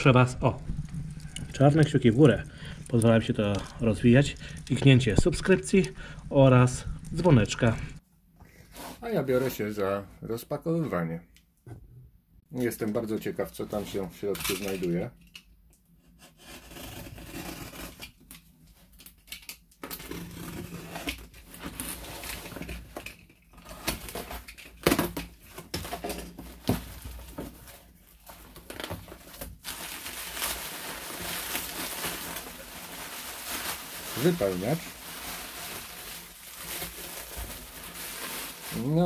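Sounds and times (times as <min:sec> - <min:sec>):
bubble wrap crinkling: 0:00.0 - 0:08.0, 0:19.8 - 0:39.0.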